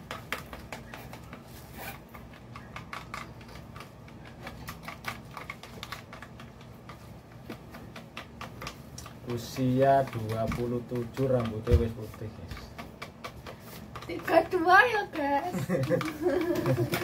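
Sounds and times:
brush scraping plastic tray: 9.1s - 17.0s.

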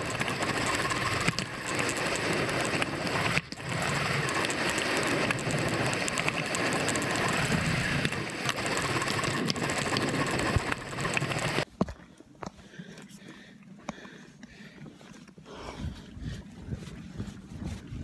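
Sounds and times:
bicycle freewheel ticking: 0.0s - 11.6s.

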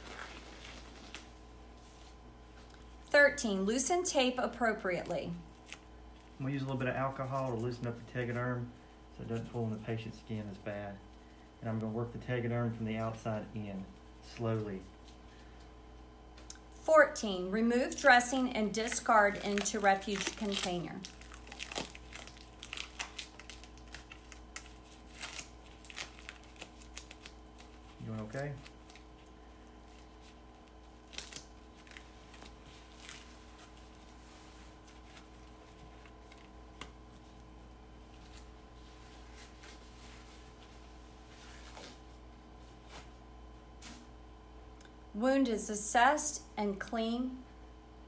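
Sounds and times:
plastic film crinkling: 0.0s - 3.0s, 18.1s - 42.2s
steady low hum: 0.0s - 48.0s.

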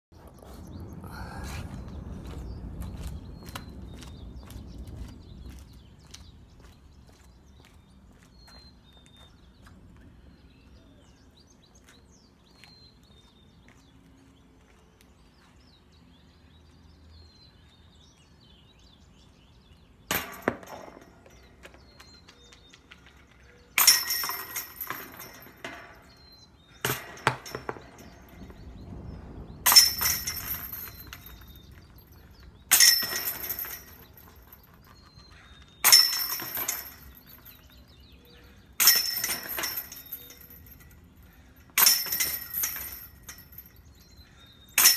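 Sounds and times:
discs striking metal basket: 20.1s - 21.6s, 23.8s - 26.2s, 26.8s - 28.6s, 29.7s - 32.1s, 32.7s - 34.6s, 35.8s - 37.6s, 38.8s - 41.0s, 41.7s - 43.8s
chains jangling: 23.8s - 25.7s, 29.7s - 35.0s, 35.8s - 37.8s, 38.8s - 41.1s, 41.8s - 44.0s.

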